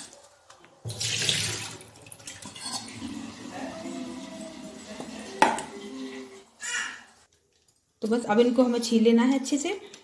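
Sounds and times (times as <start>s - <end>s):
water rushing into sink: 0.9s - 6.4s.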